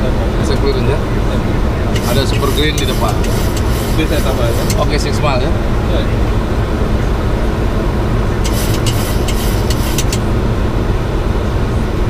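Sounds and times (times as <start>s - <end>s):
jet engine and airflow rush: 1.5s - 12.0s.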